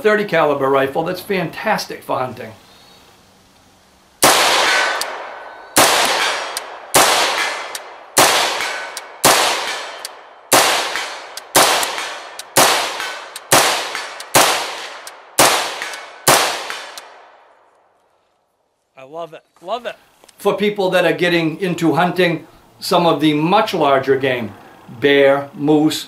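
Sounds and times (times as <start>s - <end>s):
rifle shots: 4.2s - 17.5s.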